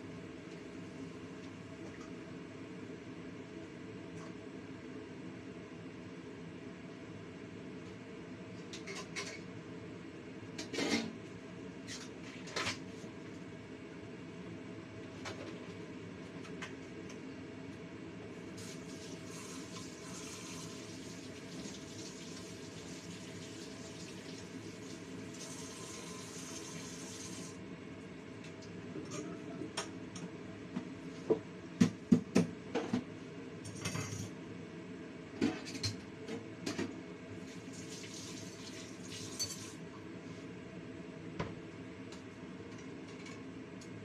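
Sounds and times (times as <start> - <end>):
water boiling in a wok: 18.6 - 27.6.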